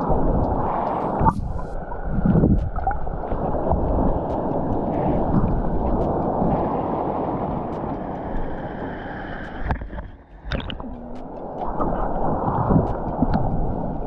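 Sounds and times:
muffled stream water gurgling: 0.0 - 14.0.

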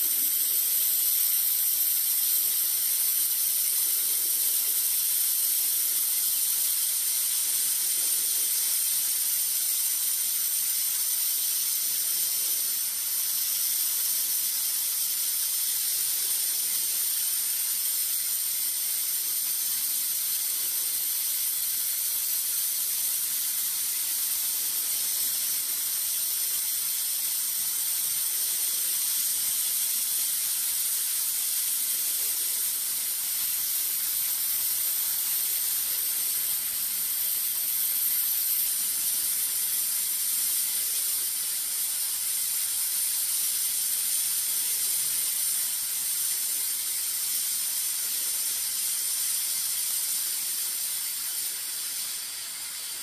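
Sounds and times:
welding arc hissing: 0.0 - 53.0.

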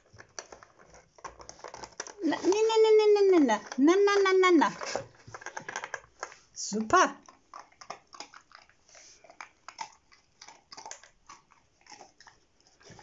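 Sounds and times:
plastic clicks and clacks: 0.0 - 7.0
dog chewing: 0.0 - 13.0.

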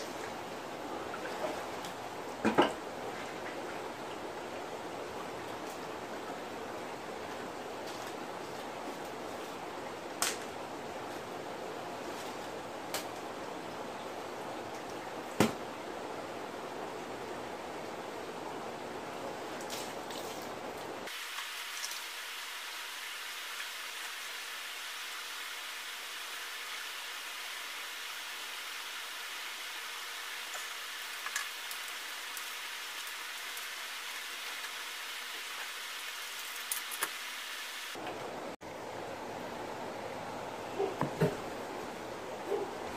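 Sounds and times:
running water splashing: 19.6 - 38.0.

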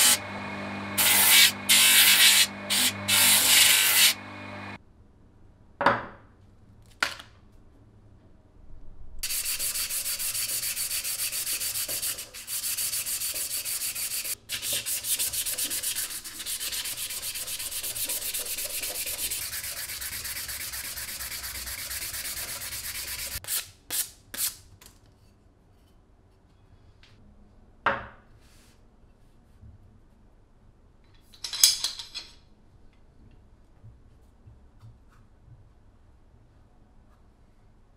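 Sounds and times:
hand-sanding wood: 1.0 - 4.2, 9.2 - 23.4.

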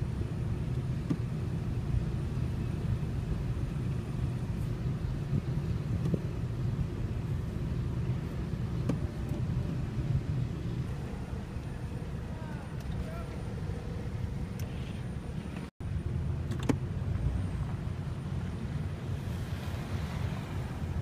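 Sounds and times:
car engine rumble: 0.0 - 21.0
tyres on snowy road: 0.0 - 21.0.

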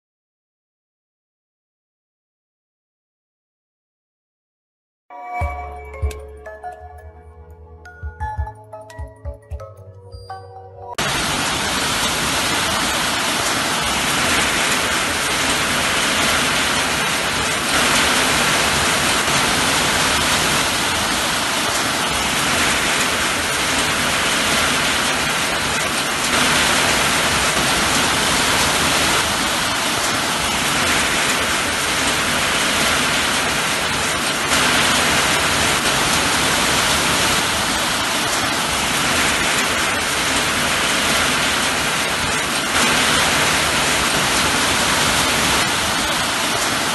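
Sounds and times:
steady rain: 11.0 - 46.9.

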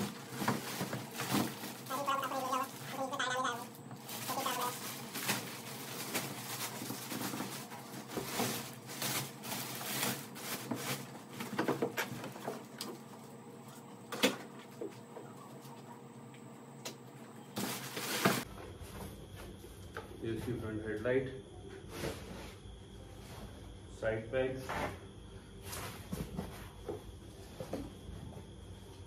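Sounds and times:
plastic wrapping crinkling: 0.0 - 11.4.

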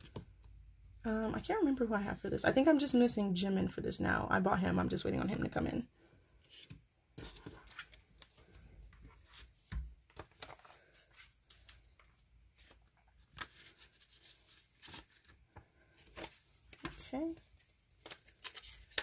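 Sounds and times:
paper rustling: 6.5 - 19.0.

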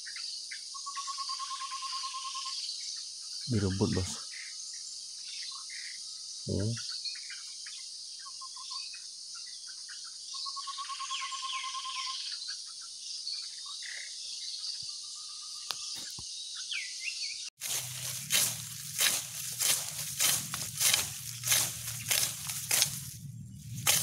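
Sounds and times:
birds chirping: 3.4 - 4.2, 15.8 - 24.0
bird trill: 16.8 - 24.0
high insect drone: 17.6 - 24.0
rustling: 17.6 - 24.0.

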